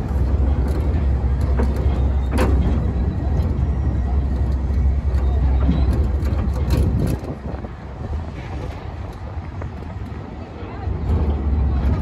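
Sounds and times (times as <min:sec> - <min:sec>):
train rumbling: 0:00.0 - 0:12.0.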